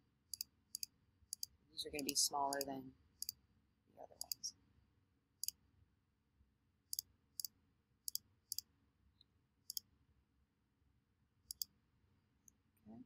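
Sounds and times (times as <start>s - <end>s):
mouse button clicking: 4.2s - 4.4s.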